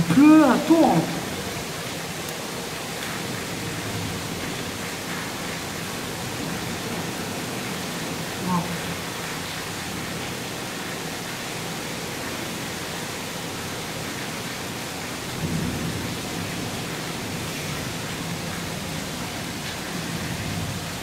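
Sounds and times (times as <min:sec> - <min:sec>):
torrential rain: 0:00.0 - 0:21.0.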